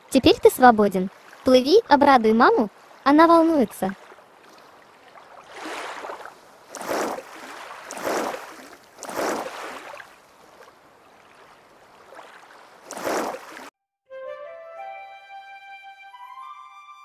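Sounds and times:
cartoon water splashes: 6.7s - 10.1s, 12.8s - 13.7s.

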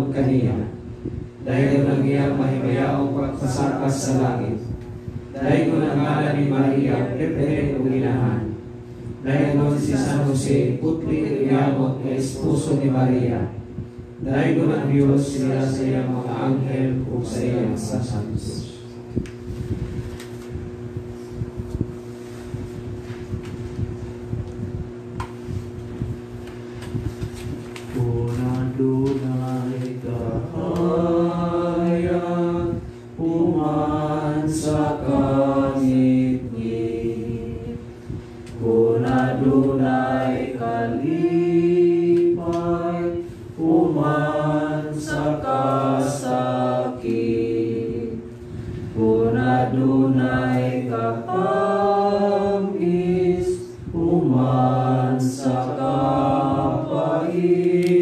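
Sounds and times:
choir singing a hymn: 0.0s - 0.8s, 1.4s - 4.6s, 5.3s - 8.6s, 9.2s - 13.6s, 14.2s - 18.6s, 28.0s - 37.8s, 38.6s - 58.0s.

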